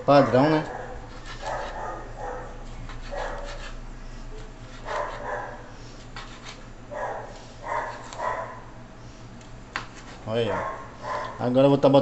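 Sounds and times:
dog barking: 0.2s - 3.6s, 4.8s - 5.6s, 6.9s - 8.7s, 10.5s - 11.5s.

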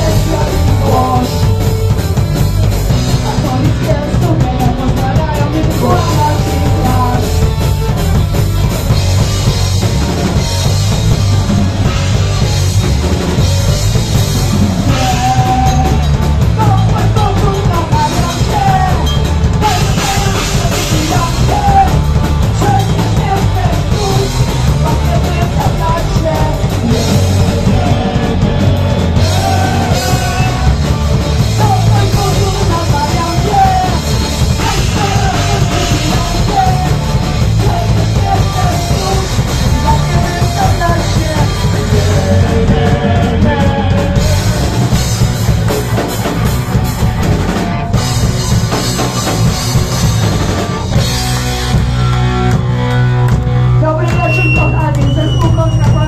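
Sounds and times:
punk rock band playing live: 0.0s - 56.0s
woman singing: 3.1s - 7.3s, 22.6s - 28.5s, 31.6s - 34.0s, 34.6s - 44.6s.

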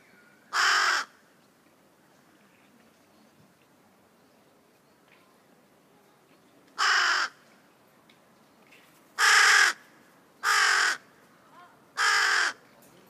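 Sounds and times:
crow cawing: 0.5s - 1.2s, 6.8s - 7.4s, 9.2s - 11.1s, 12.0s - 12.6s.

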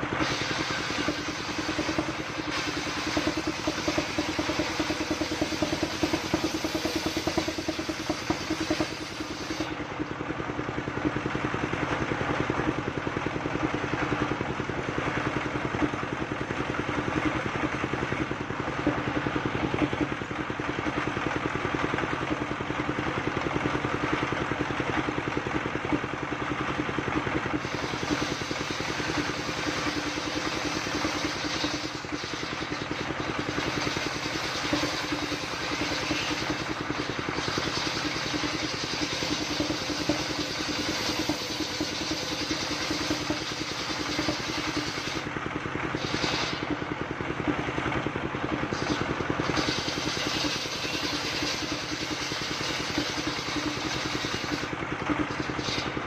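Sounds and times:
circular saw ripping wood: 0.0s - 9.8s, 27.6s - 45.3s, 45.9s - 46.8s, 48.7s - 56.0s
diesel engine running: 0.0s - 56.0s.

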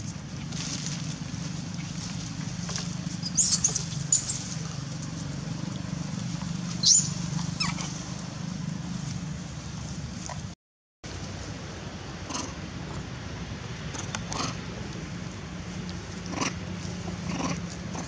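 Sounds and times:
high-pitched animal squeaks: 3.2s - 4.4s, 6.8s - 7.9s
steady low rumble: 11.1s - 18.0s.

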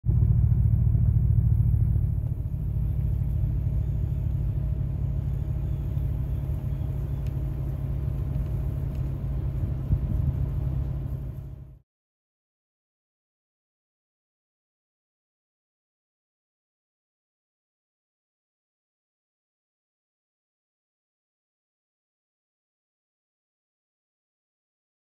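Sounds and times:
low rumble: 0.0s - 11.8s
faint steady hum: 0.1s - 11.8s.

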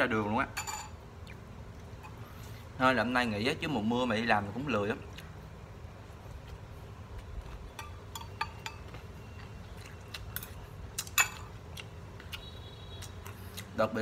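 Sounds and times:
low steady hum: 0.0s - 14.0s
man chewing food: 1.1s - 2.8s, 5.0s - 13.8s.

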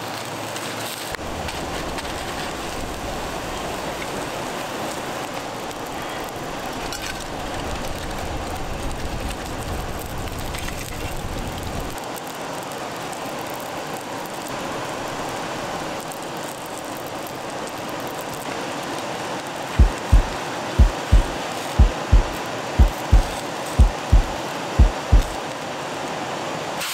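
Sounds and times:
river flowing: 0.1s - 7.4s, 12.0s - 26.8s
music with thumping beat: 19.8s - 25.4s.

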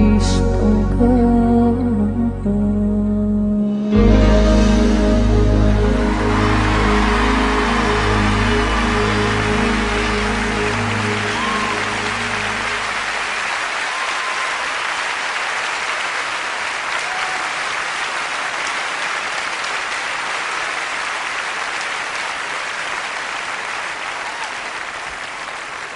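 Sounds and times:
band's low held note: 3.7s - 13.4s
audience applauding: 4.6s - 25.9s.

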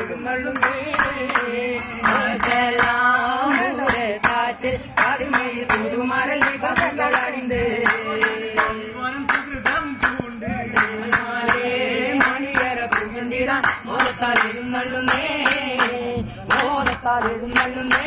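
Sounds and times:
boys singing in chorus: 0.0s - 18.0s
sharp hand claps: 0.0s - 18.0s.

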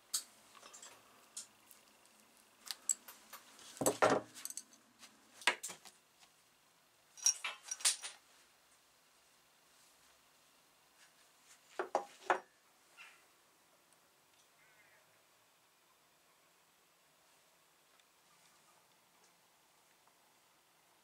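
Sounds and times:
small metal parts clinking: 0.1s - 3.2s, 3.8s - 4.8s, 7.2s - 8.2s.

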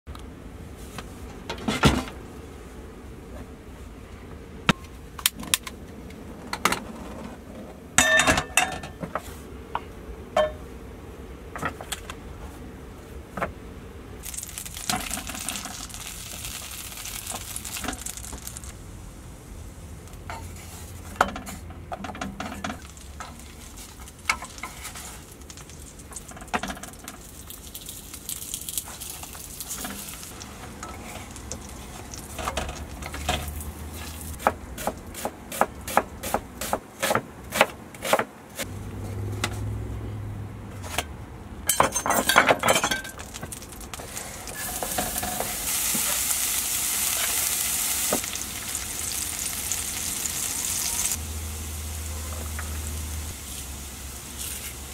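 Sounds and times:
hot oil sizzling: 14.2s - 20.9s, 22.5s - 35.3s, 42.8s - 54.9s.

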